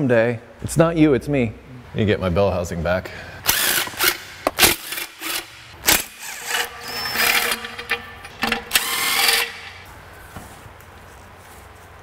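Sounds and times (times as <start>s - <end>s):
power tool running: 3.5s - 9.9s.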